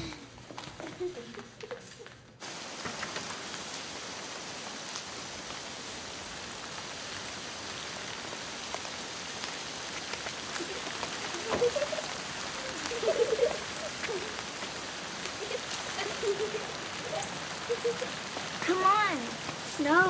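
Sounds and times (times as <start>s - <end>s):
steady rain falling: 0.0s - 20.0s.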